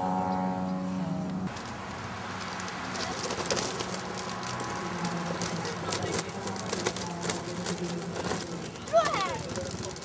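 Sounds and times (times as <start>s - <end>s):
steady low hum: 0.0s - 1.5s
distant voices talking: 2.8s - 10.0s.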